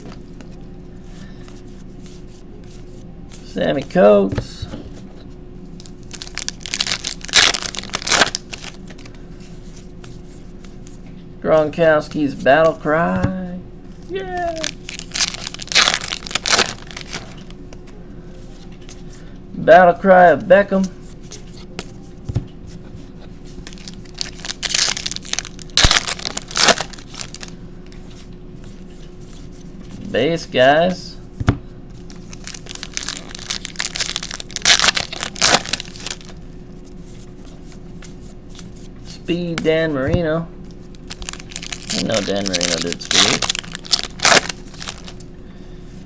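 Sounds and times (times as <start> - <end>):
foil wrapper tearing and crinkling: 6.1 - 8.8, 14.6 - 17.4, 23.7 - 27.5, 32.1 - 36.3, 41.0 - 45.2.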